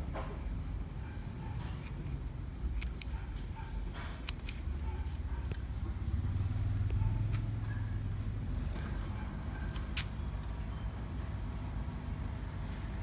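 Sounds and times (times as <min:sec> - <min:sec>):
scissors snipping stems: 0:01.7 - 0:03.3, 0:04.0 - 0:05.6.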